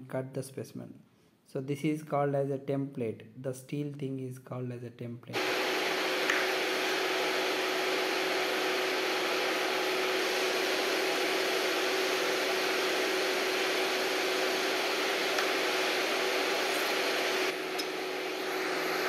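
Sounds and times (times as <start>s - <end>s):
faint hum: 5.3s - 19.0s.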